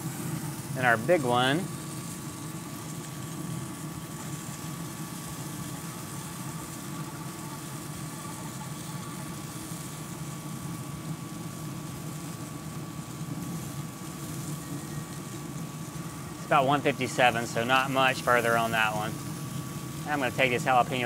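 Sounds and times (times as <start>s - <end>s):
grill fan and fire hum: 0.0s - 21.0s
high whine: 14.5s - 21.0s.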